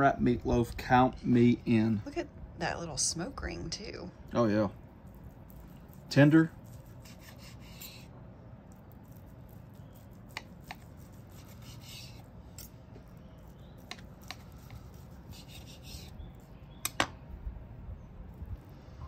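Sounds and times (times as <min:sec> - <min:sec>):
knife sawing through meat: 0:05.9 - 0:08.1, 0:09.0 - 0:12.3, 0:14.2 - 0:16.4
knife rasping on cutting board: 0:06.6 - 0:08.1, 0:10.0 - 0:12.2, 0:13.8 - 0:16.2.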